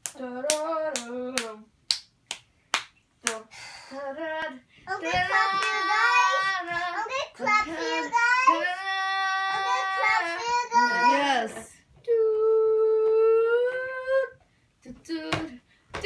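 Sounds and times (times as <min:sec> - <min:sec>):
hand claps: 0:00.0 - 0:03.4, 0:05.4 - 0:05.9
child singing: 0:03.3 - 0:11.4.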